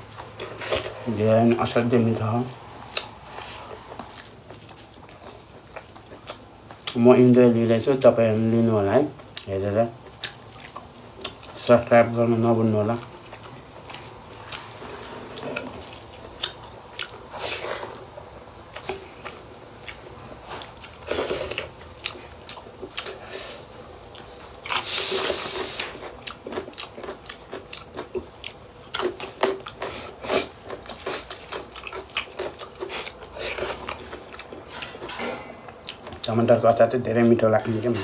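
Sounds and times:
close-up chewing and biting: 2.8 - 7.3, 9.2 - 11.7, 12.9 - 36.3.

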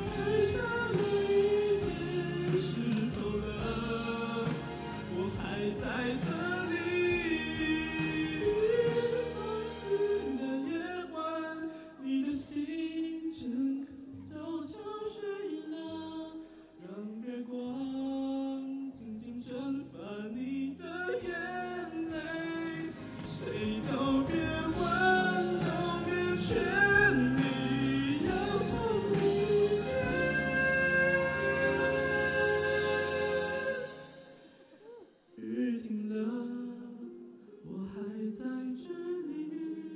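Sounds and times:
instrumental accompaniment: 0.0 - 11.2, 21.1 - 37.9
man singing into microphone: 0.0 - 39.9.

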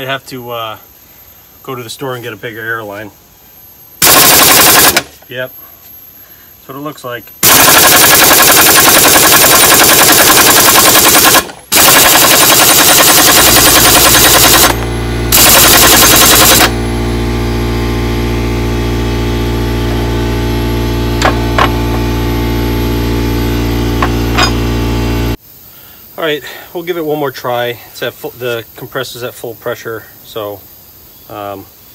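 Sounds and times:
air compressor running: 4.0 - 5.2, 7.4 - 25.4
pneumatic impact wrench hammering: 4.0 - 5.2, 7.4 - 16.8, 21.2 - 22.2, 23.9 - 24.8.

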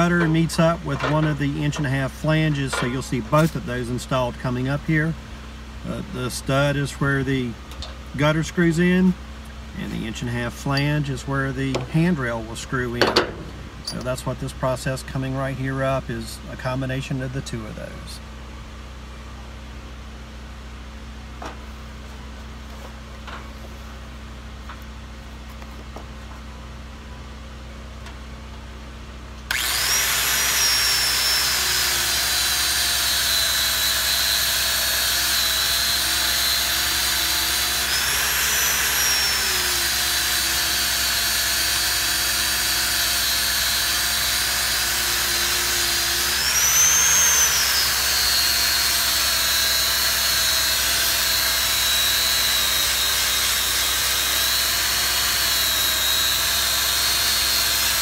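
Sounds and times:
angle grinder grinding metal: 0.0 - 3.8, 29.5 - 58.0.

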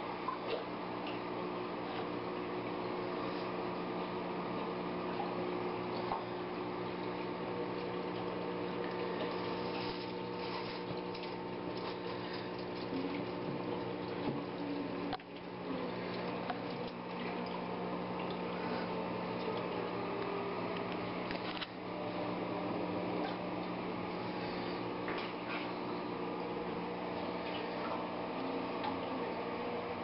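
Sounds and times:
water filter electric hum: 0.0 - 30.0
water splashing and trickling: 6.9 - 20.1.

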